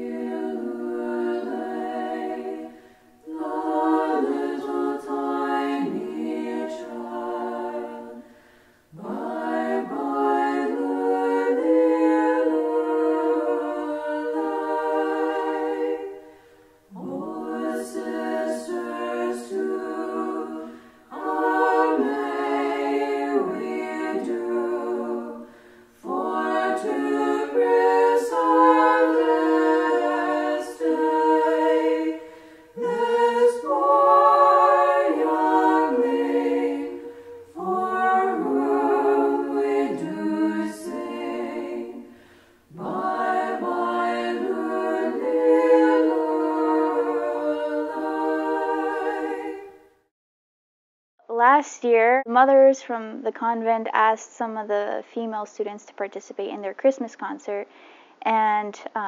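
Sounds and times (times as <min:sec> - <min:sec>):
women's choir singing unaccompanied: 0:00.0 - 0:50.1
singers breathing: 0:02.7 - 0:03.2, 0:08.2 - 0:08.9, 0:16.2 - 0:16.9, 0:20.6 - 0:21.1, 0:25.4 - 0:26.0, 0:32.2 - 0:32.8, 0:37.0 - 0:37.6, 0:42.1 - 0:42.7, 0:57.7 - 0:58.2.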